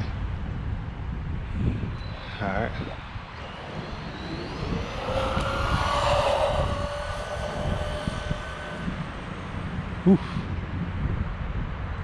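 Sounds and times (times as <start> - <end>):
low rumble: 2.1 - 10.0
electric motor whining: 3.2 - 10.0.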